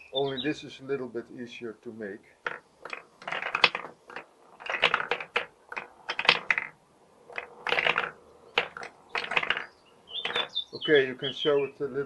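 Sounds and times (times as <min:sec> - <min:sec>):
marbles clicking on wooden switches: 0:02.4 - 0:11.2.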